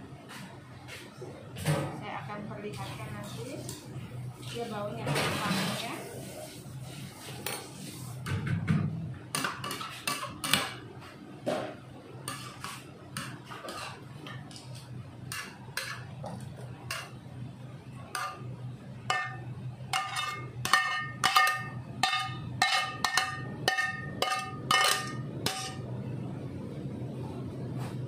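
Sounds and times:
steady low hum: 6.3s - 28.0s
metal utensils scraping a wok: 12.3s - 14.1s, 19.1s - 25.8s.

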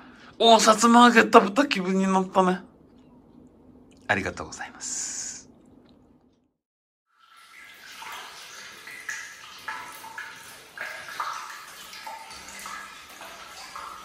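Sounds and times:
water running into a bathtub: 7.1s - 14.0s.

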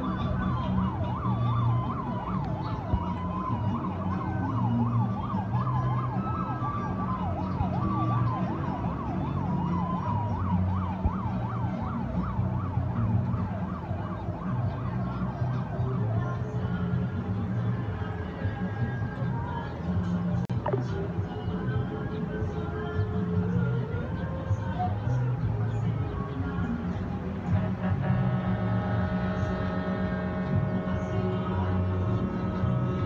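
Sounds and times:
electronic siren yelping: 0.0s - 16.0s, 20.5s - 21.0s
low steady drone: 0.0s - 33.0s.

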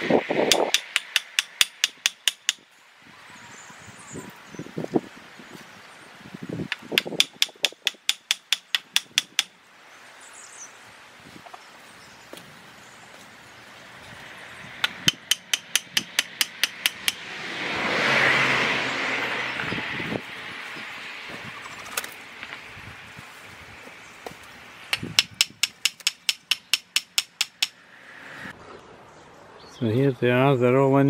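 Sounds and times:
rush of noise: 0.0s - 0.8s, 17.0s - 23.8s, 27.8s - 29.1s.

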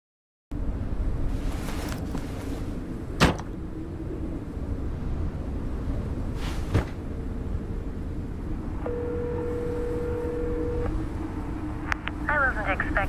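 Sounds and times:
steady low rumble: 0.5s - 13.0s
telephone ringback tone: 8.8s - 10.9s.

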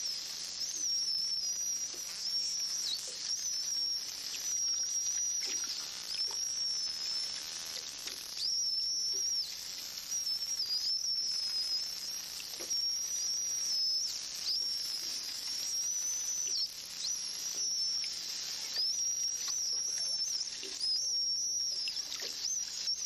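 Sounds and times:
dolphins whistling: 8.3s - 23.0s.

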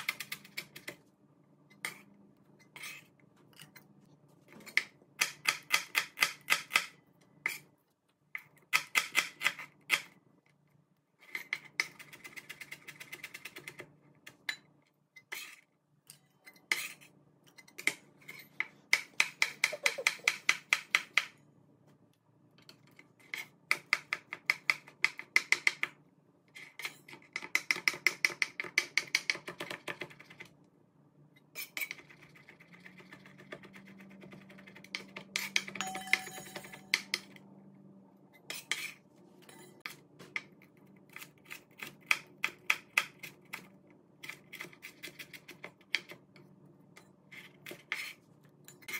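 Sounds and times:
knife chopping on plastic board: 4.7s - 7.0s.

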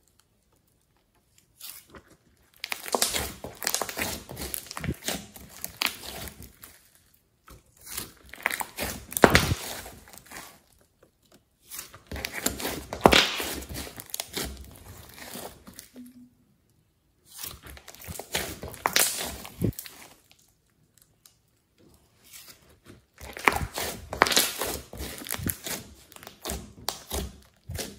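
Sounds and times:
slime squeezed crackling and clicking: 2.6s - 6.1s.

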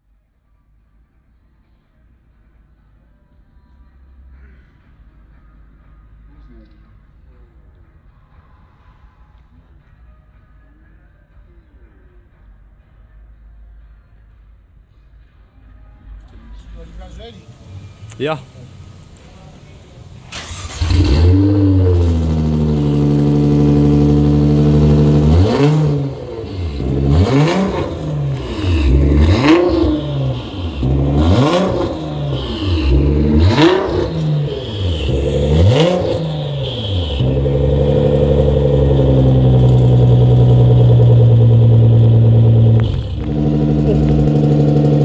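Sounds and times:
car engine starting and idling: 16.2s - 45.0s
engine revving: 17.5s - 45.0s.

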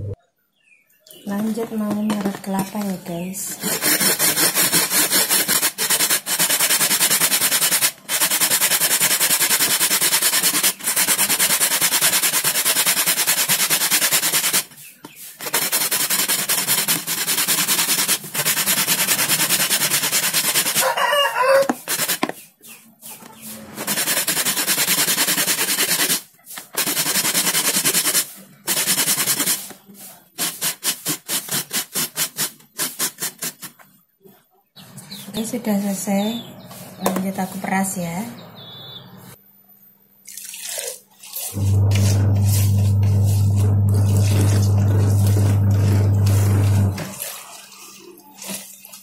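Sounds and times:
coconut rasping on metal grater: 3.5s - 20.9s, 23.6s - 29.7s, 41.5s - 47.3s
chicken calling: 20.8s - 21.7s.

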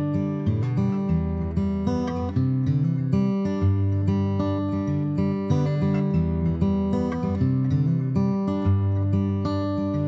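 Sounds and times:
acoustic guitar chords: 0.0s - 10.0s.

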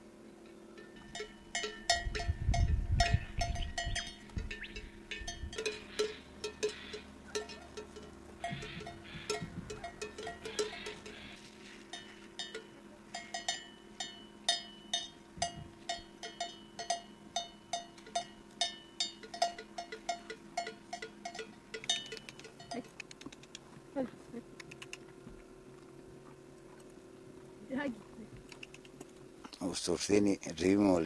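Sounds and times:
sheep bell clanking: 0.7s - 23.0s.

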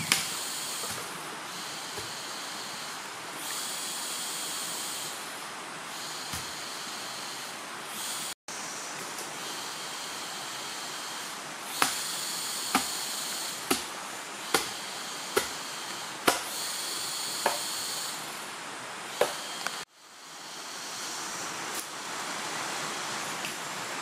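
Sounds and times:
steady high hiss: 0.0s - 24.0s
knife chopping into bamboo: 11.8s - 12.0s, 12.7s - 12.9s, 13.7s - 13.9s, 14.5s - 14.8s, 15.4s - 15.6s, 16.2s - 16.5s.

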